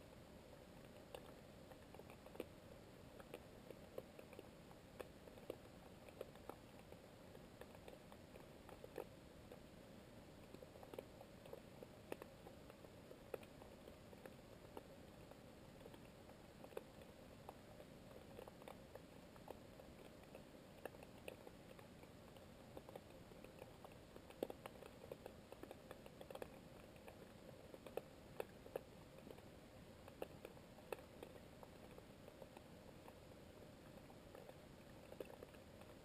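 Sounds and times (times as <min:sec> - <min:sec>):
low steady underwater hiss: 0:00.0 - 0:36.0.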